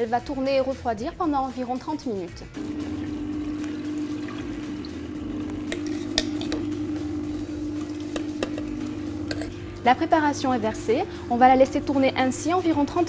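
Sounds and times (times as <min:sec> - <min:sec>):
liquid pouring from jug: 0:02.6 - 0:09.6
ice cream maker motor humming: 0:02.6 - 0:13.0
metal spoon clinking: 0:08.5 - 0:09.6.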